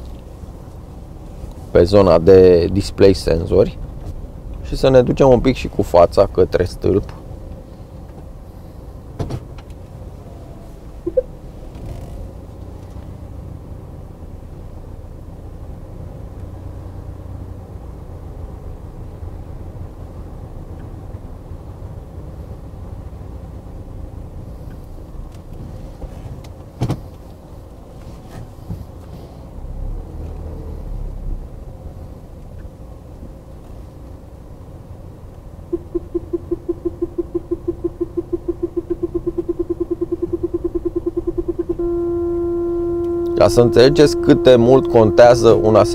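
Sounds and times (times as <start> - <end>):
parking sensors beeping rapidly: 11.0 - 11.3, 35.6 - 45.9
short beep: 11.0 - 11.3, 35.7 - 45.9
diesel engine idling: 30.8 - 45.9.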